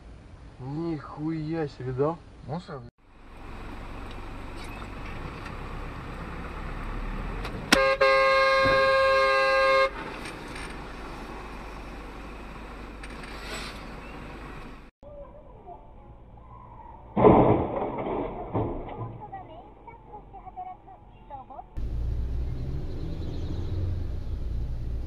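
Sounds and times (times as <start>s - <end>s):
car driving rumble: 3.0s - 14.9s, 21.8s - 25.0s
car horn: 7.7s - 10.0s.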